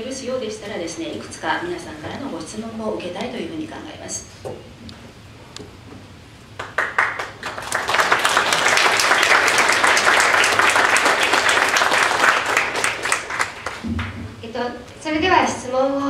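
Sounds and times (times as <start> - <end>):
audience applauding: 6.6 - 14.2.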